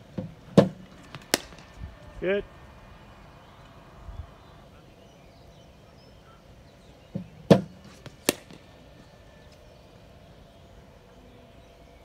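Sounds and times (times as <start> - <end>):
bat striking cricket ball: 0.1 - 1.8, 7.1 - 8.8.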